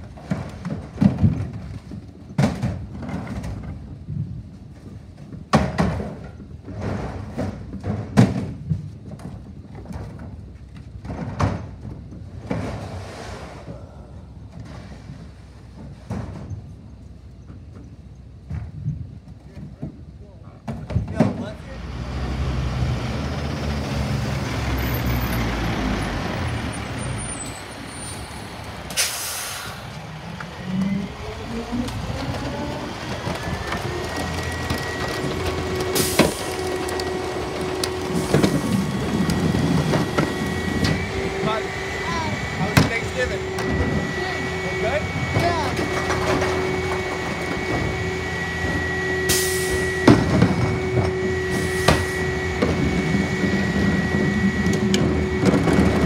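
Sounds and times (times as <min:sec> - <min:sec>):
plastic carts knocking and scraping: 0:00.0 - 0:13.0, 0:31.7 - 0:40.8, 0:45.3 - 0:47.9
truck diesel engine running: 0:21.8 - 0:56.0
air brakes hissing: 0:27.0 - 0:30.0, 0:48.4 - 0:52.6.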